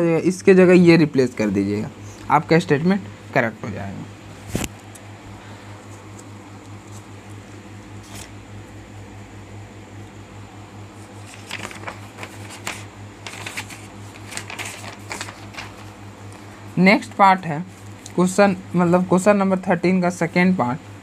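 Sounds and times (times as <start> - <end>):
steady low hum: 0.0 - 21.0
paper rustling: 4.4 - 5.0, 5.8 - 7.1, 7.9 - 8.4, 11.0 - 16.4.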